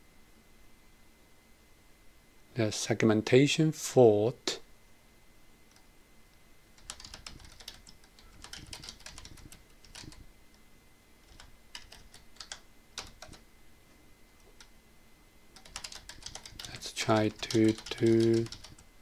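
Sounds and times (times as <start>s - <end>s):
keyboard typing: 6.8s - 10.3s, 11.2s - 13.4s, 15.6s - 18.9s.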